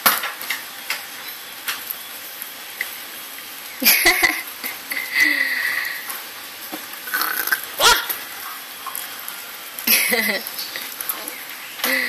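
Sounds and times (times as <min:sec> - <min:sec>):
steady background hiss: 0:00.0 - 0:12.0
puppy yelping: 0:07.8 - 0:08.2.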